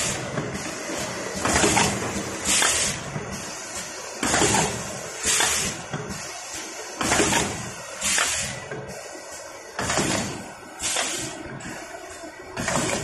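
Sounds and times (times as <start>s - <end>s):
machine hissing bursts: 0.0s - 11.4s
mechanical clatter: 0.4s - 3.3s, 9.8s - 11.4s, 12.6s - 13.0s.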